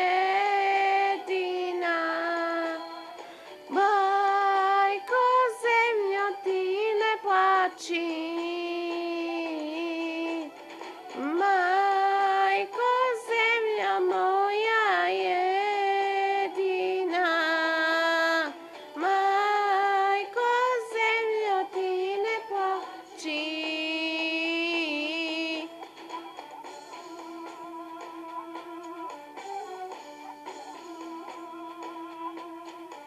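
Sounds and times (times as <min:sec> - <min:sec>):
women singing slow song: 0:00.0 - 0:03.1, 0:03.7 - 0:10.5, 0:11.2 - 0:25.7
recorded backing track: 0:00.0 - 0:33.0.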